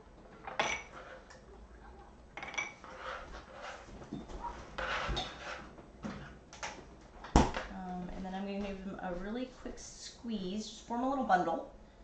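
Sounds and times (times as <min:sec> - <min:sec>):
rustling and scraping on towel: 0:02.8 - 0:05.8.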